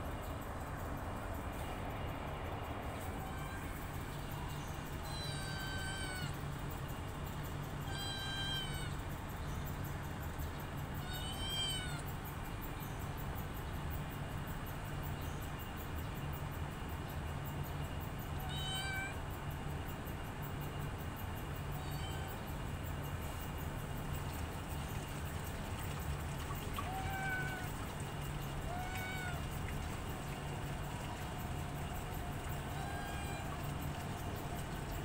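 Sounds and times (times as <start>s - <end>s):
steady low hum: 0.0s - 18.3s
cat meowing: 3.0s - 3.7s, 4.4s - 6.4s, 7.8s - 9.0s, 11.0s - 12.0s, 18.4s - 19.2s, 21.8s - 22.4s, 26.7s - 27.7s, 28.7s - 29.5s, 32.6s - 33.7s.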